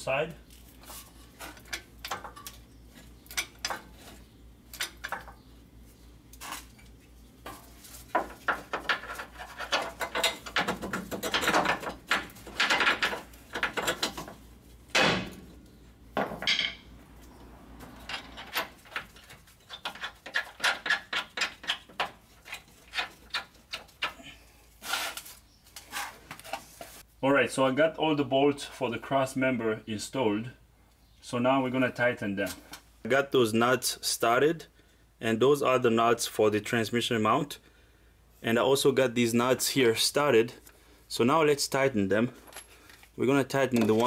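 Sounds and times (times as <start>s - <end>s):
metal bolts and tools clinking: 3.3s - 5.4s, 7.4s - 15.5s, 16.2s - 16.9s, 17.9s - 24.2s, 43.7s - 44.0s
loud metal knocks: 14.9s - 15.5s.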